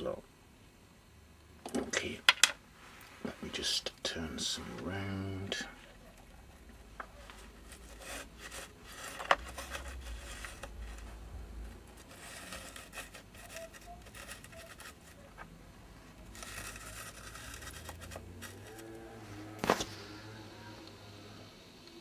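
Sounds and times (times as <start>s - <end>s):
bases rubbing and scraping on board: 6.6s - 15.5s, 16.2s - 20.1s.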